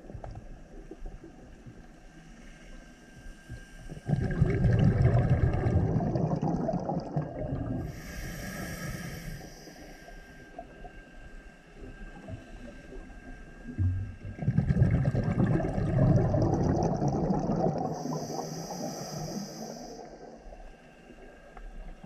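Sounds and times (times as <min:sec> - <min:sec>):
rush of exhaled bubbles: 0:04.0 - 0:08.0, 0:14.2 - 0:20.4
diver breathing through regulator: 0:07.6 - 0:21.5.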